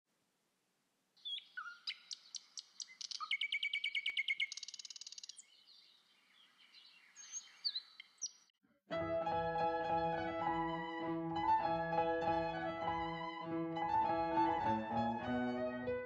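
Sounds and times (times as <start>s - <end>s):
songbirds chirping and singing: 1.2s - 8.5s.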